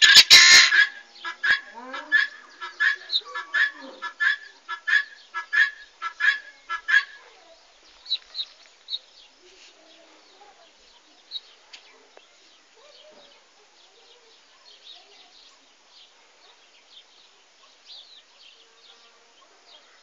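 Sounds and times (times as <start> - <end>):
guineafowl calling: 0.0 - 7.4.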